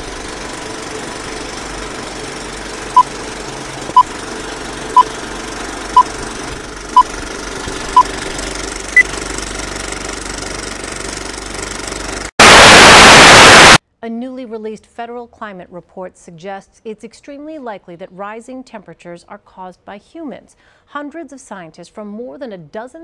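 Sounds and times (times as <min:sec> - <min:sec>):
film projector clatter and crackle: 0:00.0 - 0:12.3.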